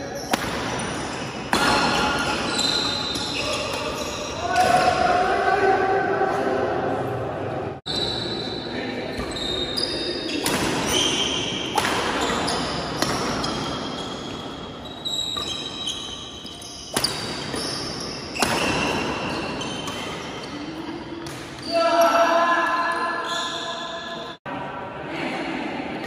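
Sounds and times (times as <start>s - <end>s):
sneakers squeaking on court: 0.0s - 4.7s, 7.9s - 24.4s
rackets hitting shuttlecock: 0.2s - 5.0s, 10.3s - 20.4s.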